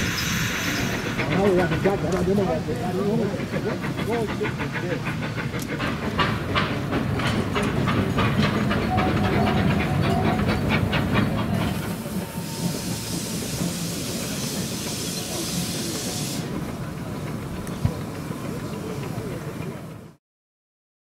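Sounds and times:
hiss of escaping steam: 0.0 - 6.8, 11.7 - 16.6
steam locomotive exhaust beats: 0.0 - 20.2.

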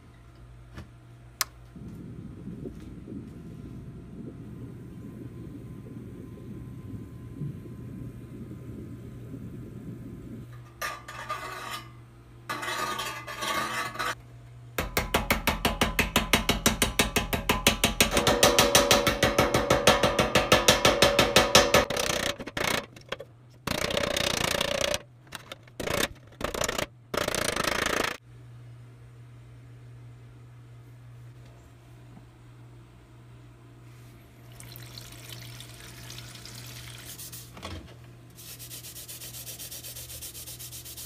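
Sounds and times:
hammer blows on sheet steel: 14.8 - 22.3.

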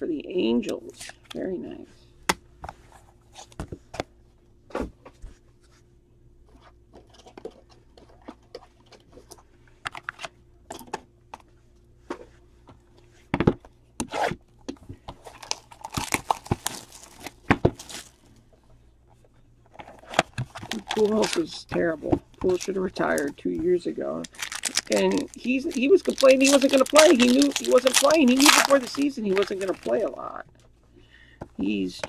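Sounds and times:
trading cards handling clicks and rustles: 6.6 - 11.5, 14.6 - 18.4, 19.2 - 23.5, 24.1 - 30.7.

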